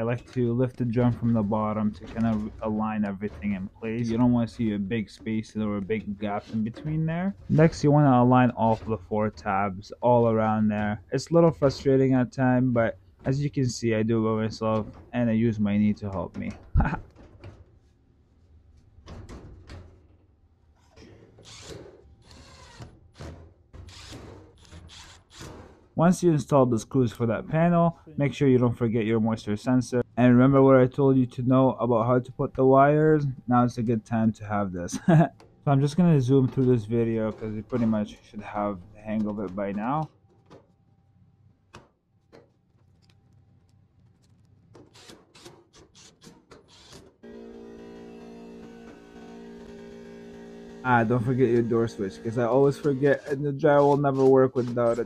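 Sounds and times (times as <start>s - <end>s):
cordless drill driving screws: 21.4s - 22.9s, 23.9s - 25.6s, 46.7s - 47.0s.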